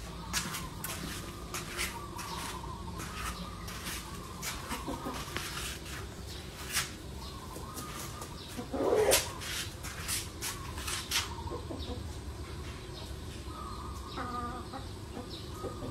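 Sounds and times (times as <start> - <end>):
bird calling: 0.0 - 15.9
low background hum: 0.0 - 15.9.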